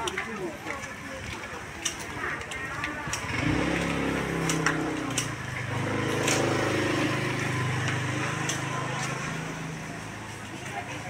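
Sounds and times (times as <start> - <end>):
sharp clicks: 1.8 - 6.5
vehicle engine running: 2.2 - 11.0.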